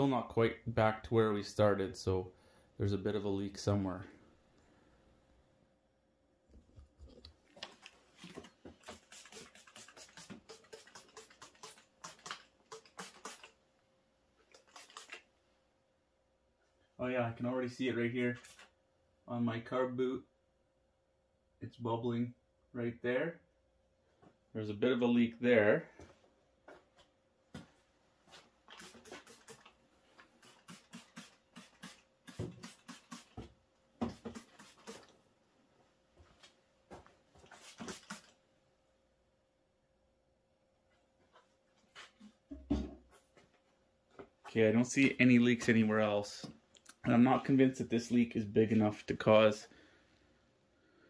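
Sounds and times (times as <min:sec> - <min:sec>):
spray bottle squirting: 0:07.7 - 0:13.6, 0:14.5 - 0:15.3, 0:28.7 - 0:33.4, 0:34.0 - 0:35.1, 0:37.4 - 0:38.4.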